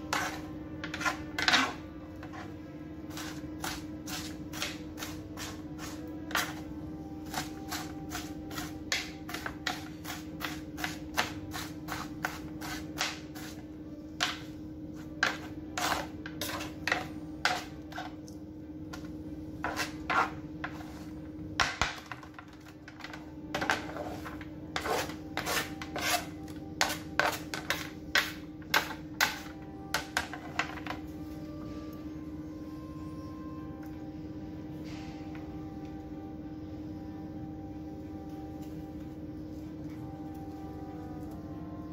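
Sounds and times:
knife chopping on cutting board: 7.3 - 13.6, 24.8 - 29.5.

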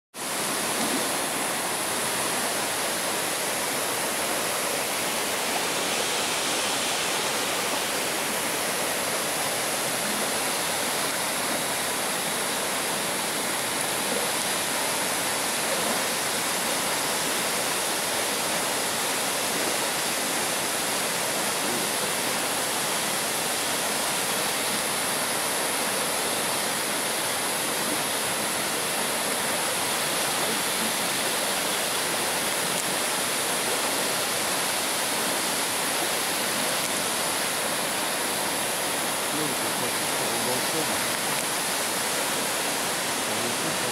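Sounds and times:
river water rushing: 0.2 - 43.9.

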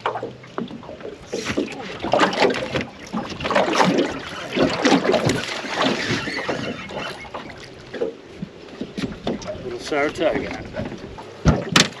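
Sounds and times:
fish thrashing in water: 0.0 - 8.2
water splashing: 0.0 - 12.0.

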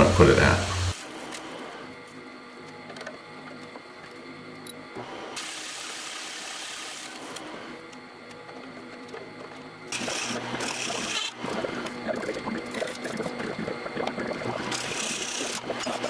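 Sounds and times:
milling machine spindle running: 0.0 - 1.7, 5.0 - 16.0.

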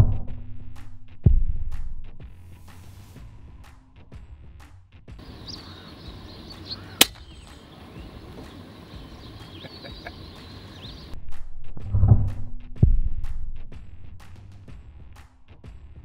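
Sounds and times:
small birds chirping: 5.2 - 11.2
air rifle shot: 5.6 - 7.6.

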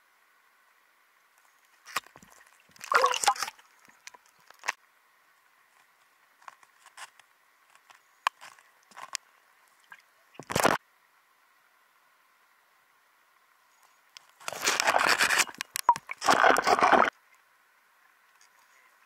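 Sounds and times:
underwater knocks and scrapes: 14.4 - 17.1.

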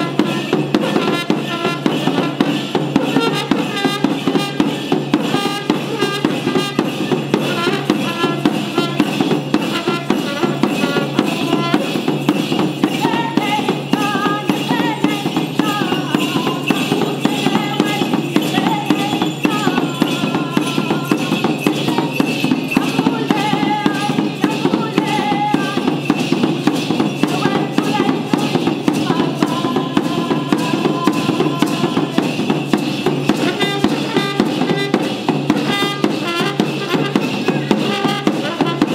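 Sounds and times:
drum beaten in fast rhythm: 0.0 - 38.9.

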